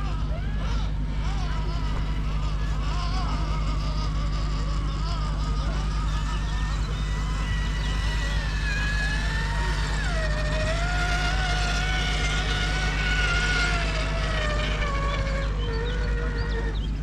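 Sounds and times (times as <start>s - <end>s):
electric motor and gearbox whine: 0.0s - 17.0s
steady low hum: 0.0s - 17.0s.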